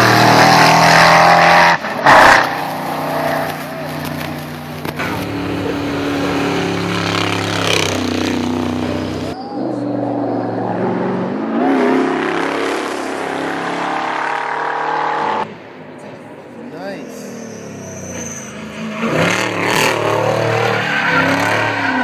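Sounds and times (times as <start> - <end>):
racing car engine running hard: 4.0 - 9.4.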